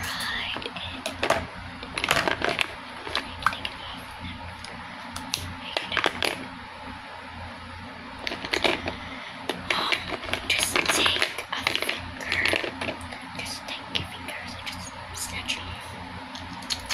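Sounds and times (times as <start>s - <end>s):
steady low hum: 0.0s - 16.9s
small items clicking and rattling: 1.1s - 3.6s, 8.2s - 9.0s, 9.7s - 13.0s.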